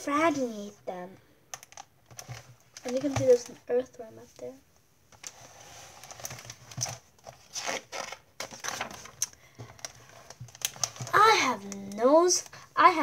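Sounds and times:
paper pages rustling: 2.1 - 3.9, 5.1 - 13.0.

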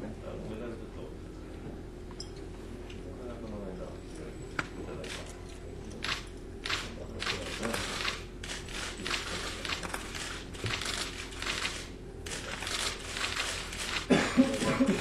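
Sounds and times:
camera shutters clicking: 6.0 - 14.7.

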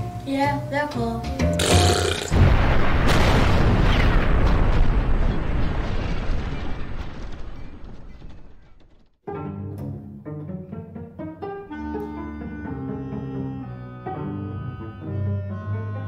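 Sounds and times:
bomb explosion rumble: 2.3 - 8.9.

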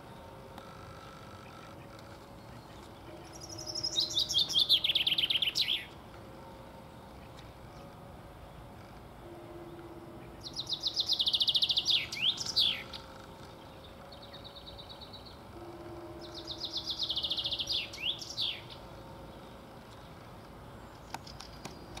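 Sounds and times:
chaffinch singing: 0.0 - 22.0.

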